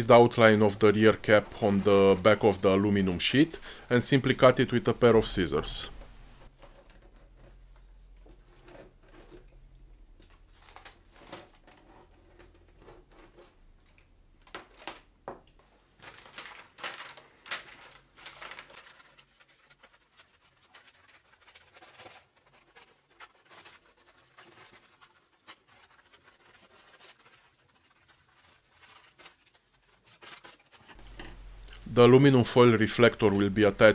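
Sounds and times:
foil crinkling and scratching: 0:00.1 - 0:05.1, 0:10.2 - 0:13.6, 0:16.0 - 0:33.9.

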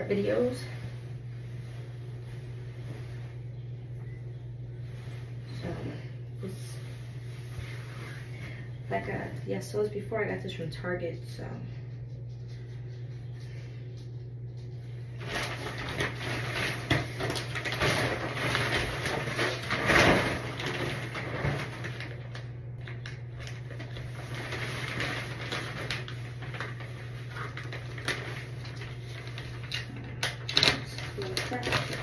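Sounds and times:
plastic curtain rustling and crinkling: 0:00.0 - 0:03.6, 0:04.8 - 0:09.3, 0:14.8 - 0:32.0.

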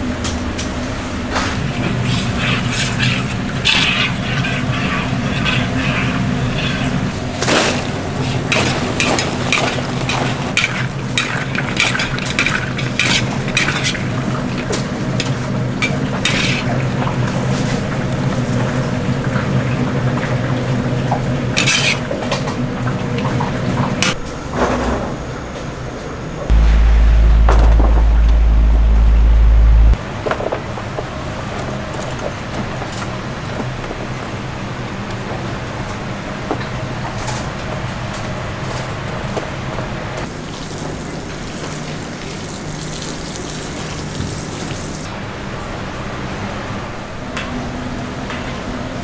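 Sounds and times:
metal utensils scraping pans: 0:02.0 - 0:16.8, 0:21.6 - 0:22.1
food frying: 0:02.0 - 0:22.2, 0:40.2 - 0:45.1
low machine hum: 0:25.2 - 0:30.2.

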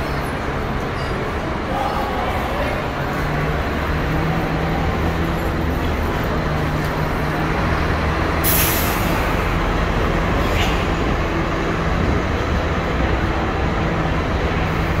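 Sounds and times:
bus diesel engine rumbling: 0:00.0 - 0:15.0
air brake hiss: 0:08.4 - 0:09.4.

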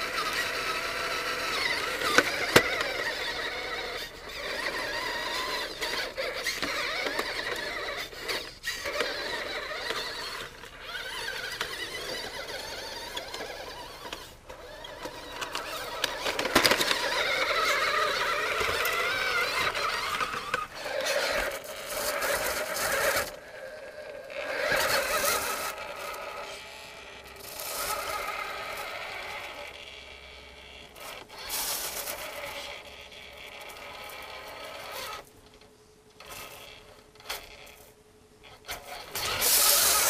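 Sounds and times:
tyres scraping on wood: 0:00.0 - 0:29.6
toy truck motor whirring: 0:00.0 - 0:40.0.

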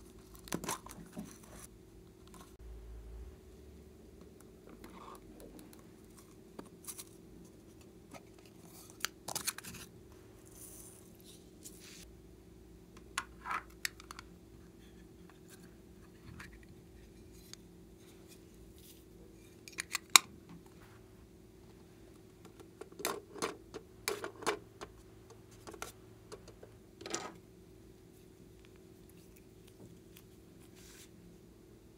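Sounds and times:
faint steady hum: 0:00.0 - 0:31.9
plastic objects clicking and tapping: 0:22.4 - 0:27.4.

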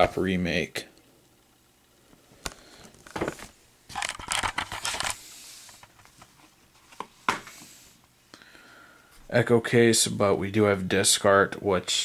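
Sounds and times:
plastic case rustling and scraping: 0:02.9 - 0:07.6.

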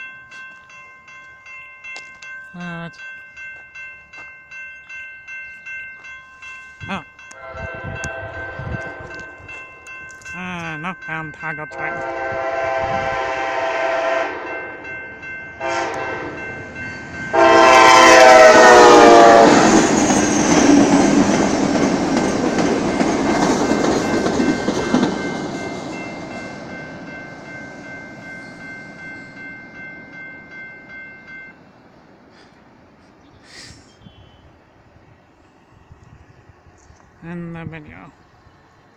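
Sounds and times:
crossing signal warning tone: 0:00.0 - 0:31.6
passing train rumble: 0:00.0 - 0:38.9
train horn blasts: 0:07.3 - 0:09.4, 0:11.7 - 0:14.8, 0:15.6 - 0:16.6, 0:17.3 - 0:20.1.

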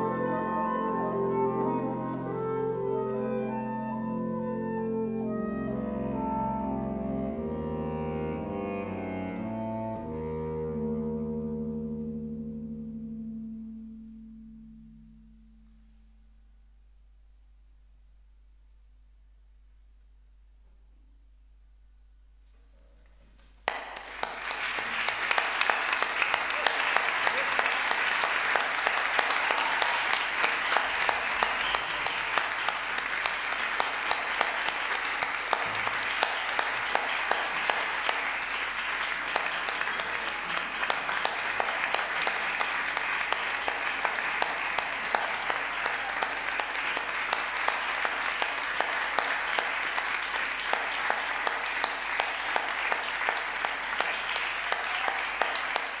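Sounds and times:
audience applauding: 0:23.6 - 0:56.0.

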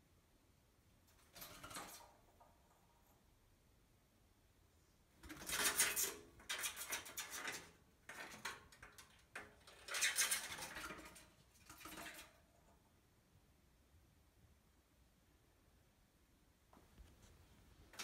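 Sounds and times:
claws scratching on metal pipe: 0:05.2 - 0:12.4.

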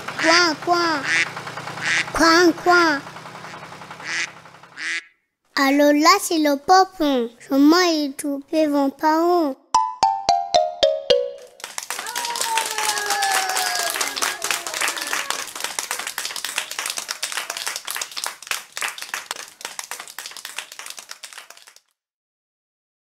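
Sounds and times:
children's voices calling out: 0:00.0 - 0:03.6, 0:12.0 - 0:16.2
children clapping: 0:00.0 - 0:04.8, 0:11.4 - 0:21.9.

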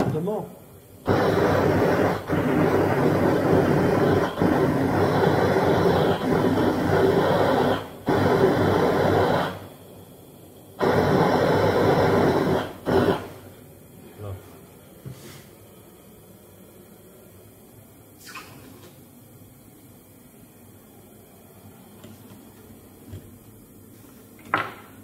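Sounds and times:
gas torch flame blowing: 0:00.0 - 0:16.1.

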